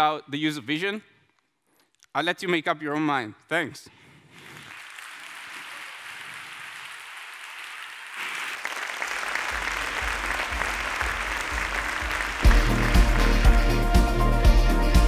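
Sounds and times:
audience applauding: 4.3s - 14.7s
bass of music: 12.4s - 15.0s.

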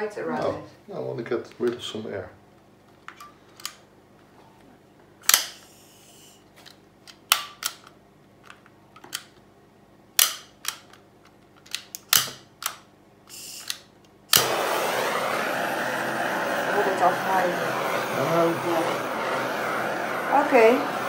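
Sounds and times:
gas torch igniter clicking: 5.2s - 5.7s, 12.0s - 21.0s
gas hiss puffs: 5.2s - 6.4s, 13.3s - 21.0s
gas torch burning hiss: 5.2s - 6.4s, 13.3s - 21.0s.

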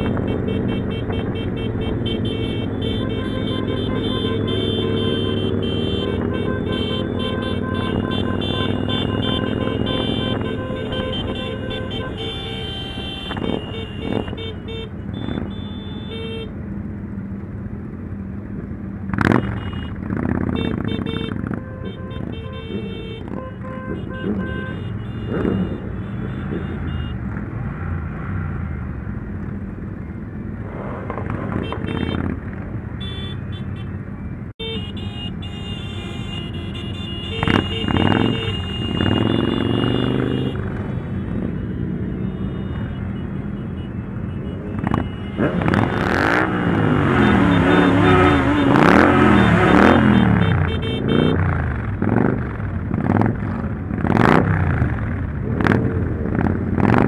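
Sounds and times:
motorcycle horn toots: 0.0s - 16.5s, 19.2s - 27.3s, 31.5s - 32.4s, 33.0s - 34.0s, 34.6s - 51.6s
motorcycle engines revving: 0.0s - 57.0s.

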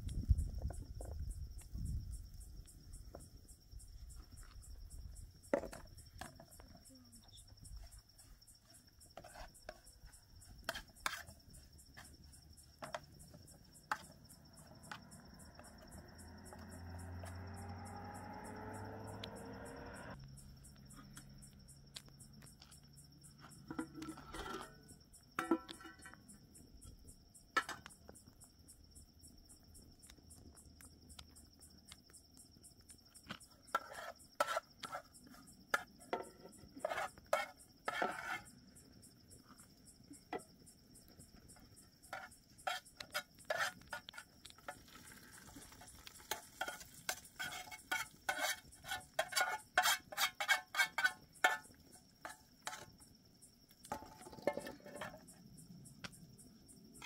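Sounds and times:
crickets trilling: 0.0s - 57.0s
metal spoon scraping pan: 23.7s - 26.2s, 35.7s - 38.5s, 42.1s - 52.9s.

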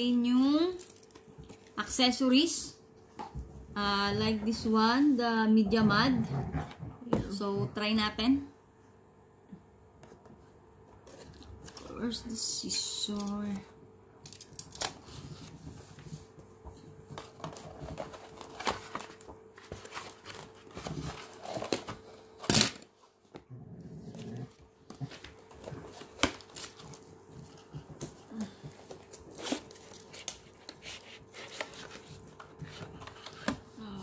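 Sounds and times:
packaging clicks and rustles: 17.1s - 22.8s, 24.9s - 33.7s.

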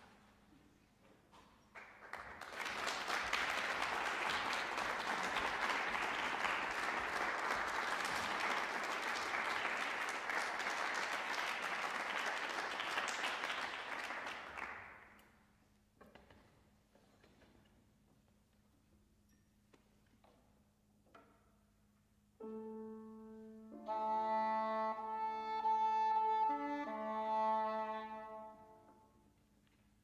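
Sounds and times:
audience applause: 1.8s - 15.0s.

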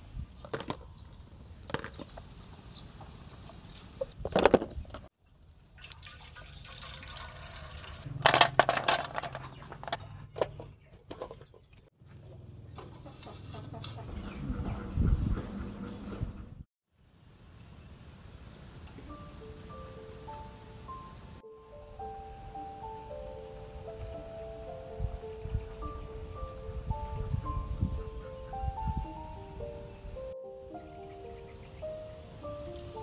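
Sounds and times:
hose water splashing into basin: 5.8s - 8.1s.

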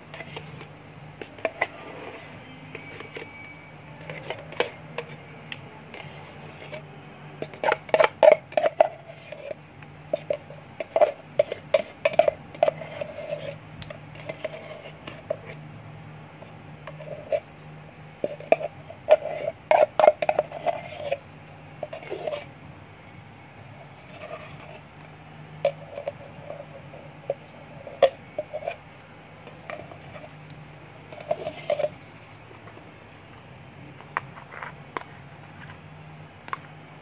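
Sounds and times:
spoon scraping and knocking jar: 0.0s - 5.3s, 5.9s - 15.6s, 16.4s - 17.5s, 18.2s - 22.5s, 23.9s - 24.9s, 25.6s - 28.8s, 29.4s - 30.4s, 31.1s - 32.1s, 34.0s - 35.8s.

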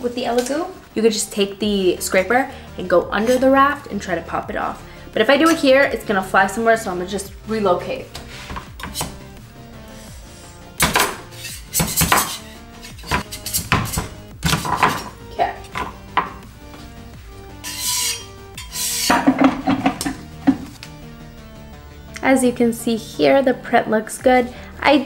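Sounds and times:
metal scraper scraping build plate: 11.3s - 15.1s, 17.6s - 20.7s.

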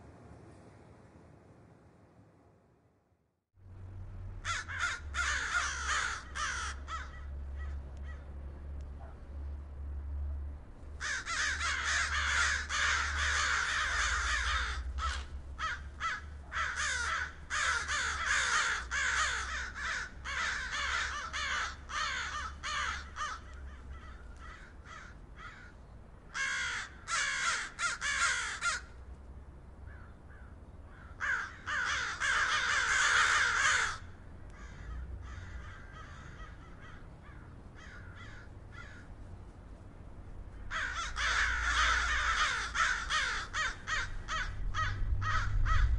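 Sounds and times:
crows cawing: 4.4s - 8.3s, 11.0s - 29.0s, 29.8s - 39.2s, 40.5s - 45.9s.

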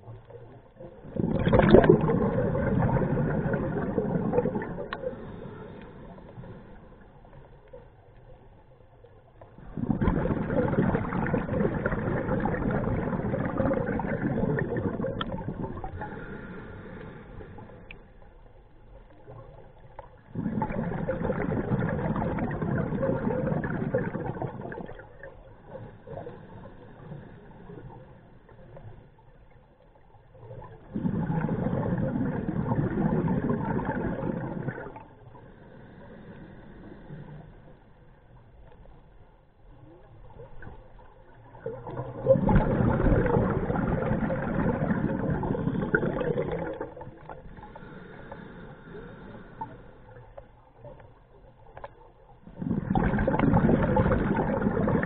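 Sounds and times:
diver exhaling bubbles underwater: 0.0s - 6.7s, 9.6s - 17.9s, 19.3s - 27.0s, 30.4s - 35.4s, 40.3s - 50.2s, 51.8s - 55.0s.

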